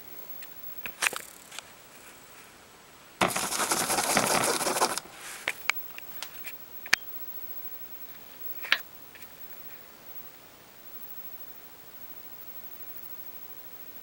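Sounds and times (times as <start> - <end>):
newspaper rustling and crinkling: 3.2 - 5.6.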